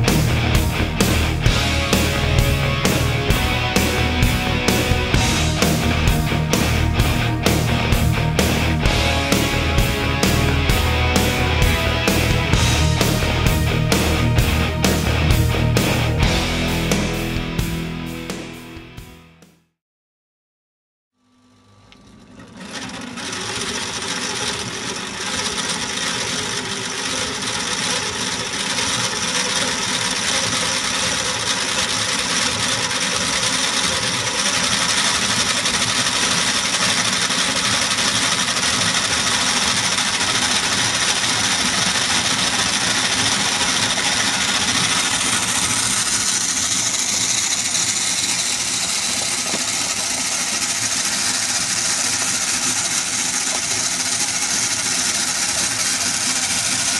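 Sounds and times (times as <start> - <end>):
model engine mechanical rattle: 22.3 - 56.9.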